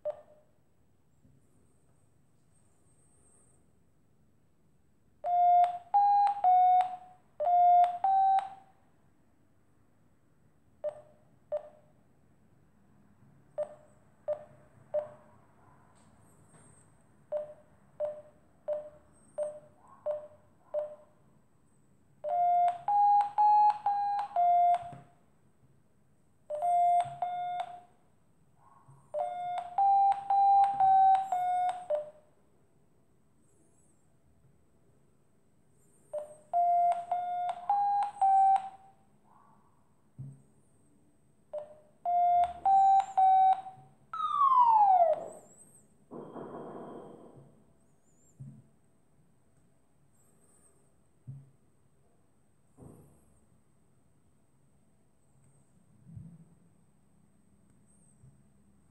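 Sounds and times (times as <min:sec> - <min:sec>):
slow low single beeps: 0:00.0 - 0:00.5, 0:05.2 - 0:08.7, 0:10.8 - 0:11.9, 0:13.5 - 0:15.3, 0:17.3 - 0:21.1, 0:22.2 - 0:25.1, 0:26.5 - 0:27.9, 0:29.2 - 0:32.2, 0:35.8 - 0:39.0, 0:41.5 - 0:46.5.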